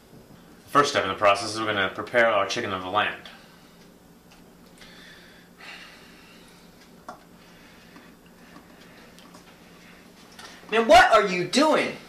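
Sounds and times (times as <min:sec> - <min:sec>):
faint breaths: 0:04.7 - 0:10.7.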